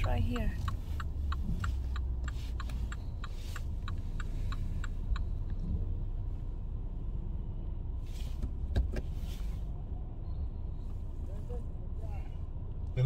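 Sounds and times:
click: 0:00.0 - 0:05.6
turn signal ticking: 0:00.0 - 0:09.4
car engine idling: 0:00.0 - 0:13.0.

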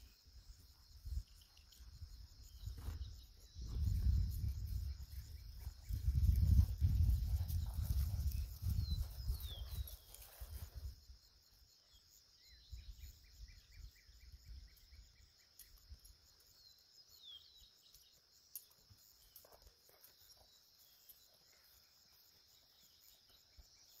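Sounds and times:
crickets droning: 0:00.0 - 0:24.0
bird chirps: 0:07.3 - 0:24.0.

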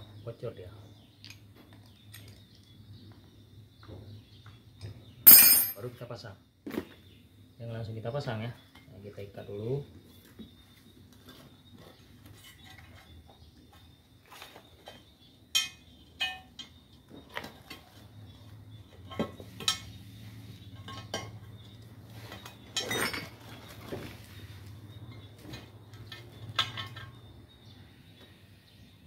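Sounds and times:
light knocks and metallic clinks: 0:03.8 - 0:05.8, 0:12.3 - 0:20.0, 0:20.6 - 0:24.0, 0:24.8 - 0:27.6.

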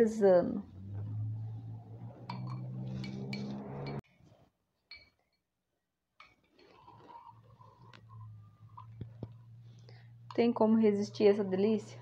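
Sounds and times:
metal spoon clinking on glass jar: 0:02.3 - 0:04.0, 0:04.9 - 0:05.2
low steady hum: 0:07.6 - 0:12.0.

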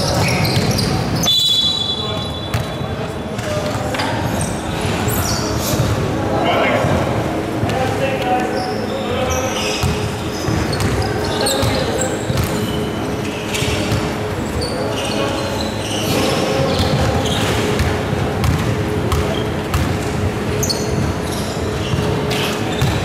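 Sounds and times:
sneakers squeaking: 0:00.0 - 0:23.0
basketball bouncing on wooden floor: 0:11.6 - 0:12.6, 0:17.8 - 0:20.0, 0:22.8 - 0:23.0.

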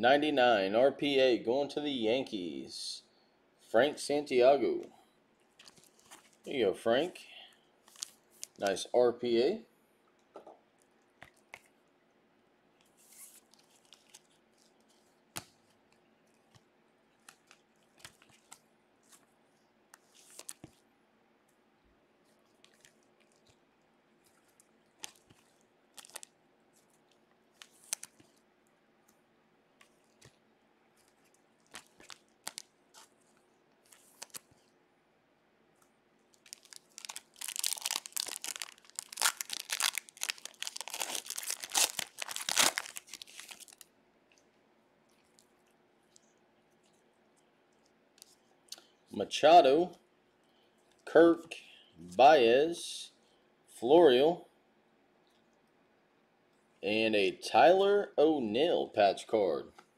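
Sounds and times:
card pack wrapper tearing: 0:25.0 - 0:26.3, 0:27.6 - 0:28.4, 0:31.0 - 0:33.2, 0:33.8 - 0:34.6, 0:36.3 - 0:43.9.

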